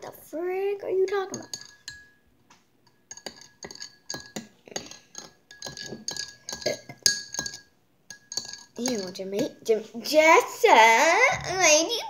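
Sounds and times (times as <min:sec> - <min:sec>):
spoon clinking against glass: 0:01.3 - 0:02.2, 0:02.9 - 0:09.2
glass ringing: 0:01.3 - 0:02.3, 0:02.9 - 0:09.2.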